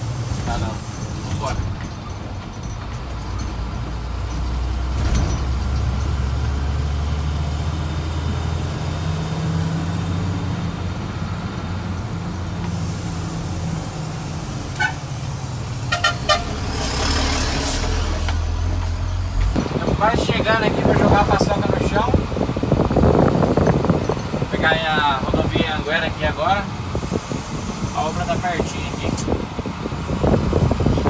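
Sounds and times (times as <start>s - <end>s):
diesel truck engine running: 0.0s - 31.0s
short horn toots: 14.7s - 15.1s, 15.9s - 16.8s.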